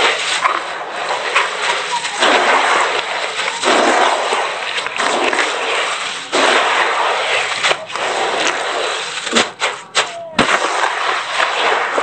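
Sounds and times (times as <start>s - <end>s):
hands churning cement mix in tub: 3.0s - 12.0s.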